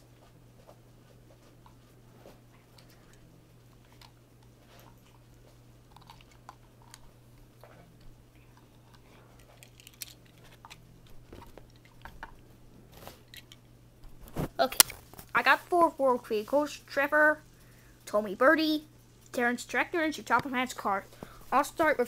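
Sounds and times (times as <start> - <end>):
faint clicks and rustles: 0.0 - 15.4
low steady hum: 0.0 - 22.0.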